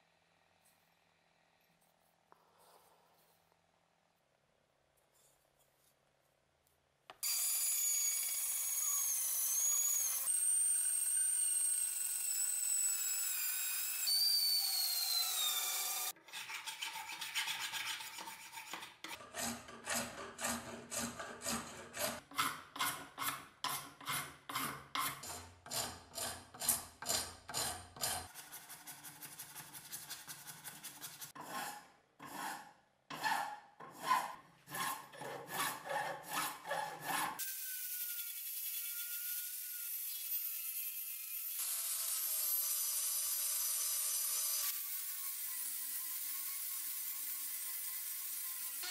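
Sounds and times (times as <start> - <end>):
hand file rasping: 16.0 - 37.4.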